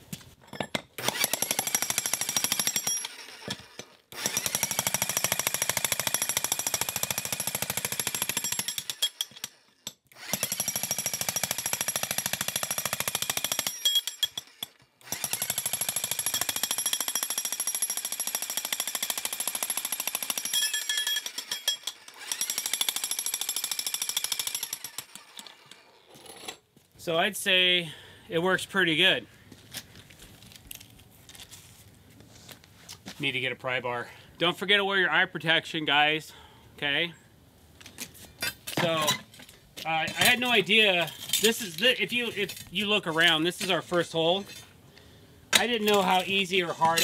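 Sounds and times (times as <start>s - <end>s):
jackhammer breaking concrete: 1.0s - 9.5s, 10.2s - 25.6s.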